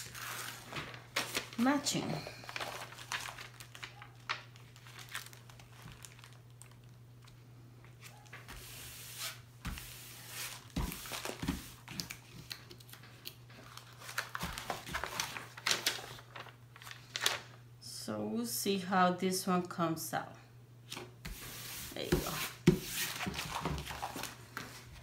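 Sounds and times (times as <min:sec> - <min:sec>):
plastic film crinkling: 0:00.0 - 0:07.4, 0:10.3 - 0:17.5.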